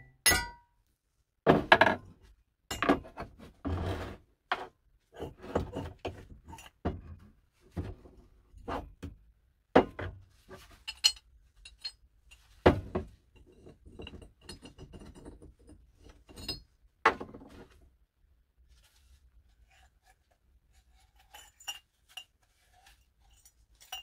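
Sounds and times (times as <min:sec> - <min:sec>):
metal parts clinking and knocking: 0:10.7 - 0:12.6.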